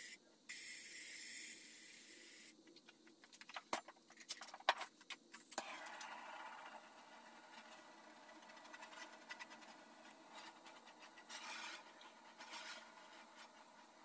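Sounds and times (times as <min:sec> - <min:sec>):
powder coating gun air hiss: 0:00.0 - 0:02.6.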